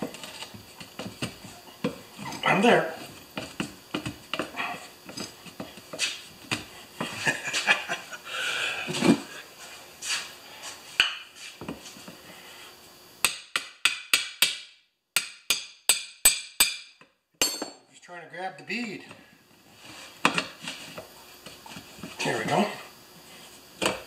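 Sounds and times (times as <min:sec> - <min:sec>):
sharp metal knocks: 0:13.2 - 0:17.8.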